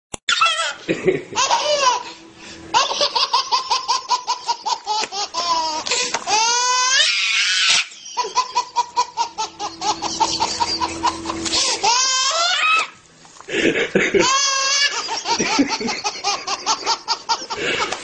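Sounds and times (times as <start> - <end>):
baby squealing: 0.3 - 0.8, 2.8 - 13.0, 14.2 - 15.3
baby belly-laughing: 0.3 - 2.1, 2.7 - 7.2, 7.8 - 12.9, 13.8 - 18.0.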